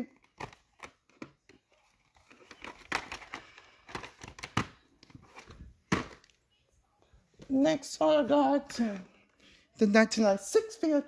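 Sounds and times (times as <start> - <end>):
plastic cassettes clacking: 0.1 - 6.3.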